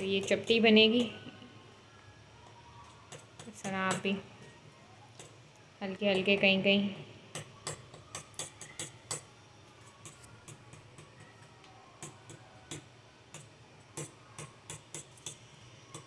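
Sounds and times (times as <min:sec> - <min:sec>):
fork tines tapping on stone: 0:07.3 - 0:09.3.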